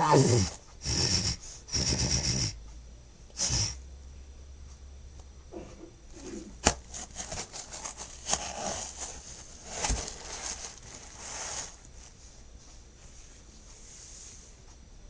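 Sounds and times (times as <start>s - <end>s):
rustling handling noises: 6.1s - 14.4s.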